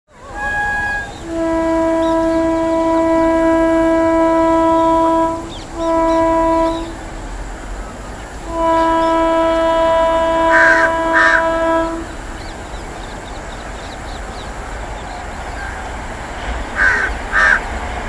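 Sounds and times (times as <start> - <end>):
locomotive horn blasts: 0.1 - 7.2, 8.4 - 12.6.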